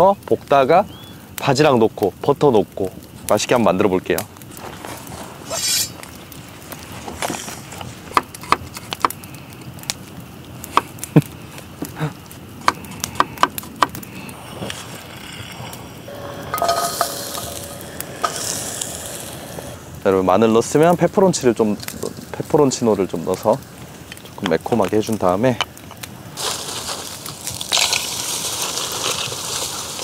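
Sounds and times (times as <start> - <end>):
garlic sizzling in pan: 14.1 - 30.0.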